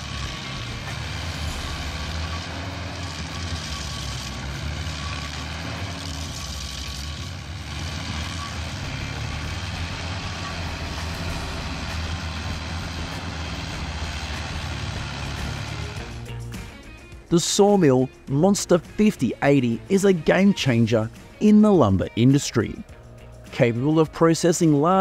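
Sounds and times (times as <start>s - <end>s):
cutter wheel grinding stump: 0.0s - 16.3s
stump grinder engine running: 0.0s - 17.0s.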